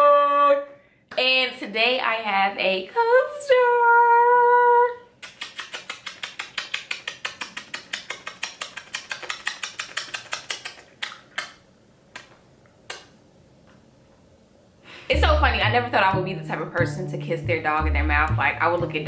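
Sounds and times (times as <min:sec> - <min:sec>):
lip-smack kisses: 0:05.2 - 0:13.2.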